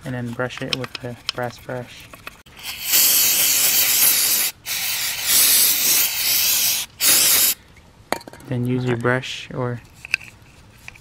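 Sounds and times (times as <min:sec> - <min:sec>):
aerosol spray hissing: 0:02.6 - 0:07.6.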